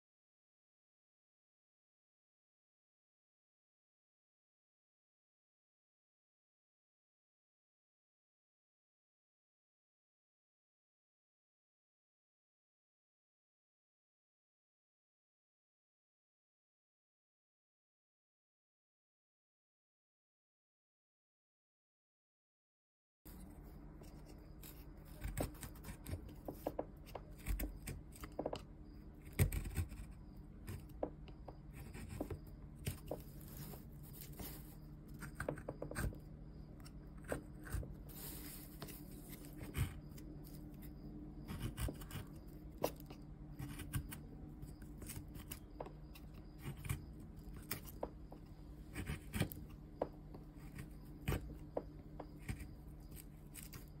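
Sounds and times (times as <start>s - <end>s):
faint low hum: 23.3s - 54.0s
gouge scraping wood: 23.3s - 54.0s.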